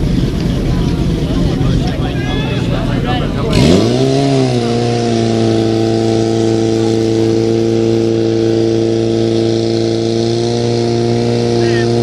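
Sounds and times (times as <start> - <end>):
pump engine running at high revs: 0.0 - 12.0.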